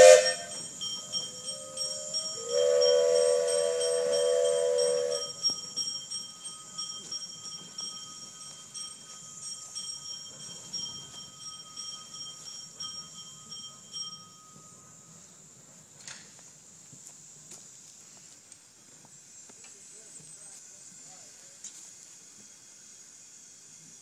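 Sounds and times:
steam locomotive whistle: 0.0s - 0.6s, 1.5s - 5.4s
locomotive bell ringing: 0.0s - 15.4s.

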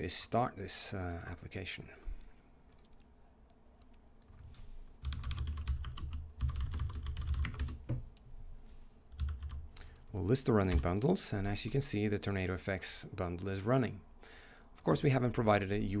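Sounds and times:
typing on computer keyboard: 5.0s - 8.0s, 9.1s - 9.6s.

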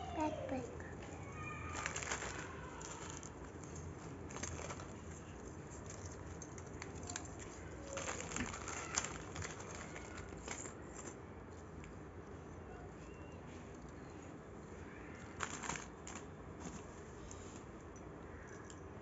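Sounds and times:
plastic pouches rustling: 0.5s - 11.2s, 15.1s - 17.5s.

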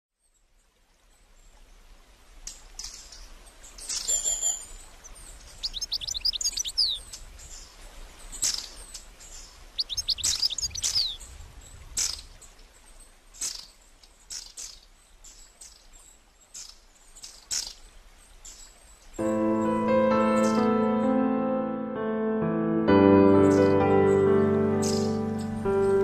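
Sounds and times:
songbirds singing and calling: 2.4s - 20.8s, 23.2s - 26.0s
falling whistled bird notes: 23.3s - 26.0s.

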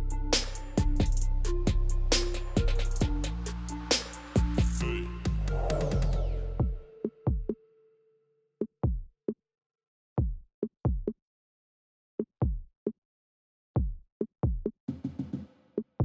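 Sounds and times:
deep kick drums dropping in pitch: 10.2s - 11.1s, 12.4s - 12.7s, 13.8s - 14.7s.

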